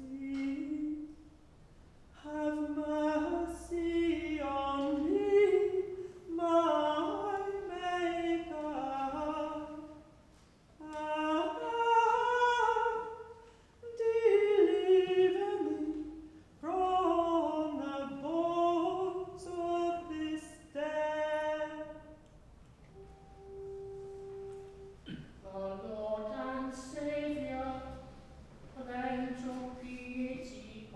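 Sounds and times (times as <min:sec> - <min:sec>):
woman singing unaccompanied: 0:25.4 - 0:28.2, 0:28.8 - 0:30.9.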